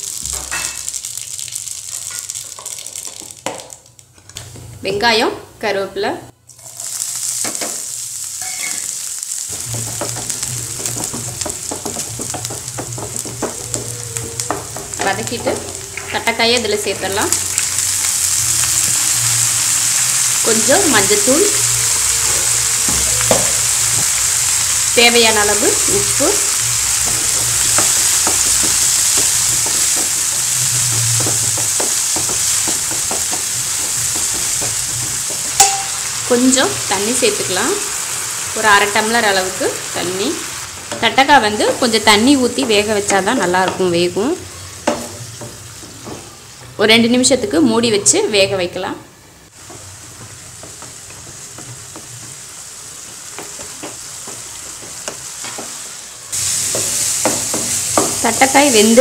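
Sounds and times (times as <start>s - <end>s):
vegetables sizzling in oil: 0.0s - 5.1s, 6.4s - 59.0s
spatula scraping and tapping pan: 9.6s - 16.2s, 49.6s - 52.6s, 53.3s - 55.8s.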